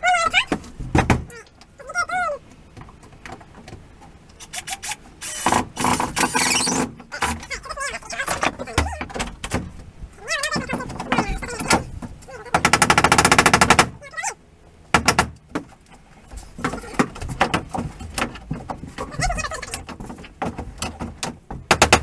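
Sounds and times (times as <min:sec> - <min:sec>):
knocks and clatter: 0:00.3 - 0:01.5, 0:05.4 - 0:14.0, 0:14.9 - 0:22.0
cordless drill hammering: 0:04.6 - 0:06.9, 0:12.6 - 0:13.9, 0:14.9 - 0:15.4.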